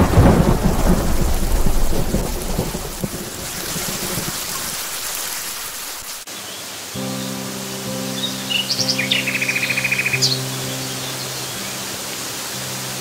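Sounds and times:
thunder rumbling: 0.0s - 5.1s
steady rain: 0.0s - 13.0s.

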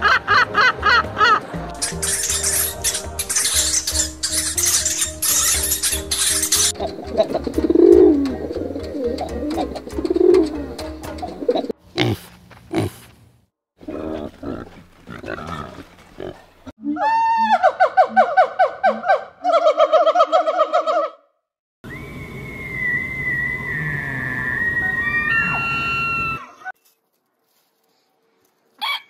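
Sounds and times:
sharp noises: 1.8s - 6.8s
pigeons cooing: 6.6s - 11.7s
warthog grunting: 13.8s - 16.5s
gibbon hooting and whooping: 16.8s - 21.2s, 22.8s - 26.7s.

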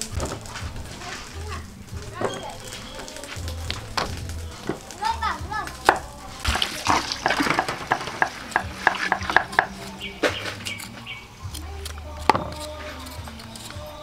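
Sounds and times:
knife scraping skin off root: 5.7s - 14.0s
cleaver chopping on wooden block: 5.8s - 10.9s, 11.5s - 13.9s.

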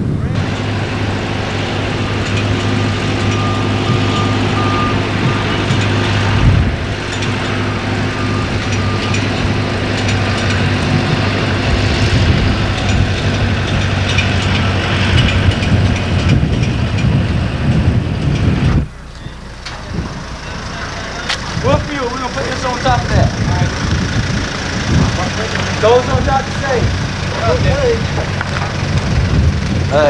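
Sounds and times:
heavy vehicle engine running: 0.0s - 30.0s
outdoor noise: 0.0s - 30.0s
reversing alarm beeping: 0.4s - 14.8s, 18.8s - 26.1s.

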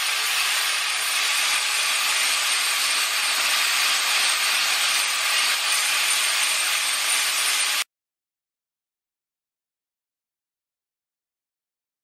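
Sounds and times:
angle grinder grinding metal: 0.0s - 7.9s.

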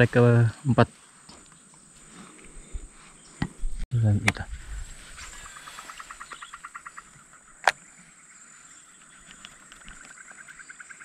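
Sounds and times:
frog calling in rapid pulses: 5.4s - 7.7s.

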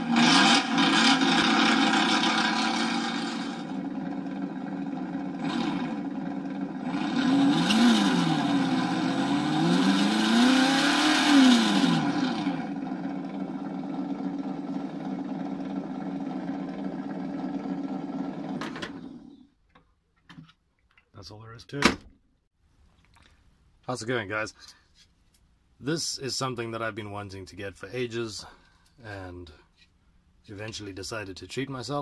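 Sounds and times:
simulated engine revving: 0.0s - 19.4s.

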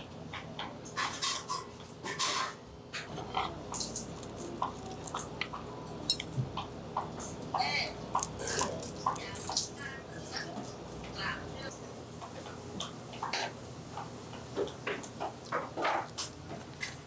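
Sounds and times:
shrimp shell being peeled: 8.2s - 9.7s.

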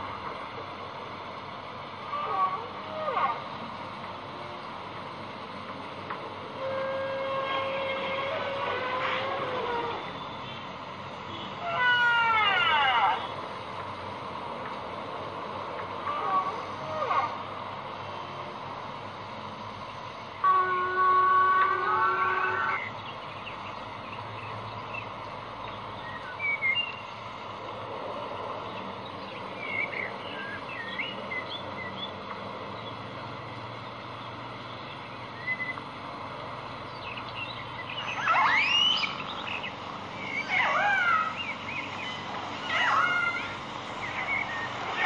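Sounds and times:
steady hiss: 13.2s - 40.5s, 41.2s - 45.0s
killer whale whistles: 38.0s - 39.3s.

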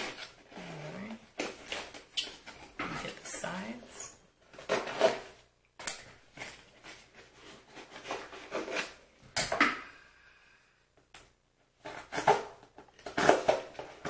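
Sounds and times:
packaging scraping and rustling: 0.0s - 3.8s, 4.4s - 5.5s, 6.3s - 9.1s, 11.8s - 14.0s.

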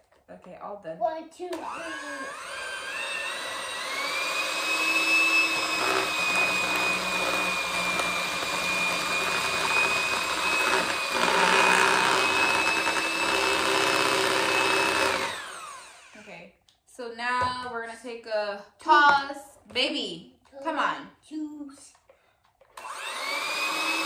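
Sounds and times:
electric hand mixer whining: 1.5s - 16.3s, 22.8s - 24.0s.

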